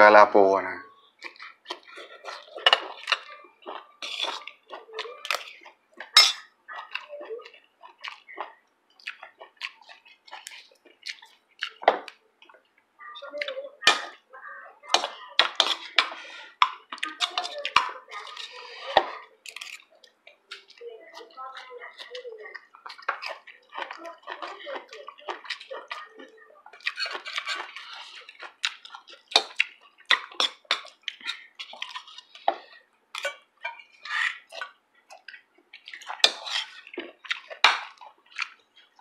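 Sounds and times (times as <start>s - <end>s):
spoons clinking on ceramic bowls: 6.1s - 6.5s.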